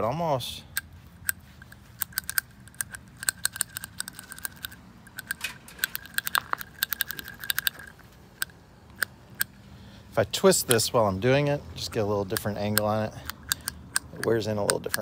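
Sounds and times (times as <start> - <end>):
metallic clicking and tapping: 0.7 - 9.6, 12.2 - 15.0.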